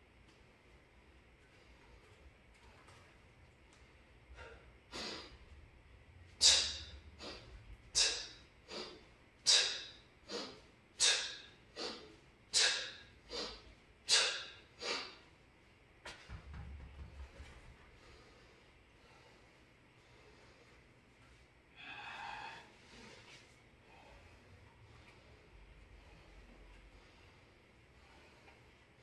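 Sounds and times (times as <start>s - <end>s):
sharp forceful breaths: 6.3s - 15.3s, 17.9s - 29.0s.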